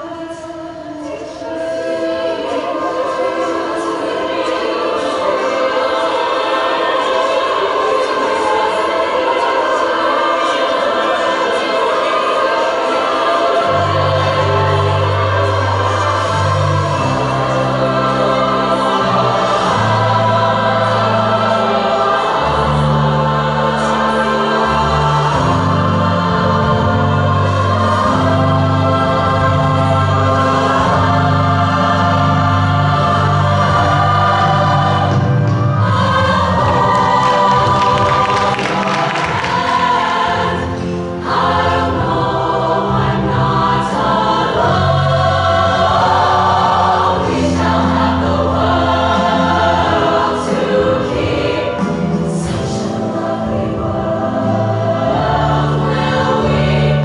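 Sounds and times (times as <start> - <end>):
choir singing in harmony: 0.0 - 57.0.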